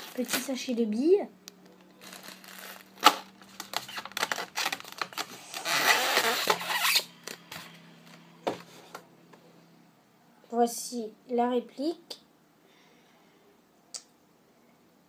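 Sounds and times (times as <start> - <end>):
packaging rustling: 1.9 - 7.7.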